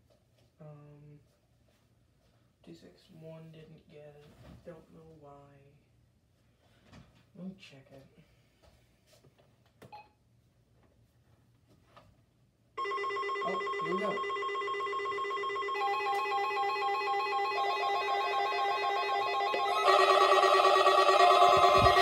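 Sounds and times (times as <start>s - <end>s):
electronic alarm tones: 12.8s - 22.0s
warbling alarm tone: 12.8s - 22.0s.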